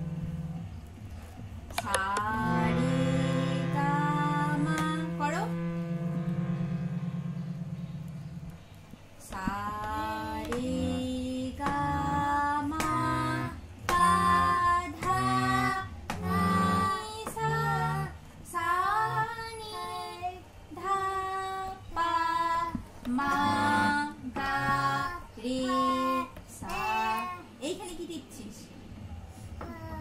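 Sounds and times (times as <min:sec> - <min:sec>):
harmonium notes: 0:00.0 - 0:01.0, 0:01.7 - 0:19.9, 0:23.2 - 0:26.3
child singing: 0:09.2 - 0:27.5, 0:29.6 - 0:30.0.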